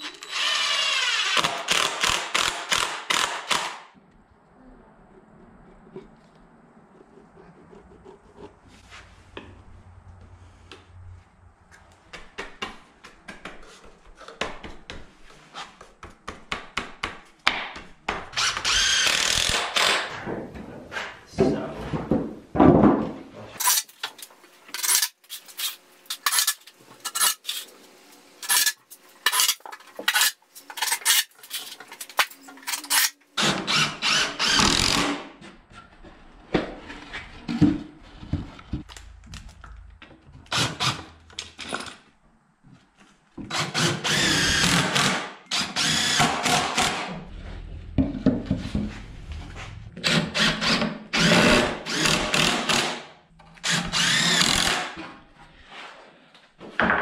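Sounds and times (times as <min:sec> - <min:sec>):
cordless drill driving screws: 0:00.0 - 0:03.4, 0:18.4 - 0:20.0, 0:43.5 - 0:46.9, 0:53.6 - 0:54.9.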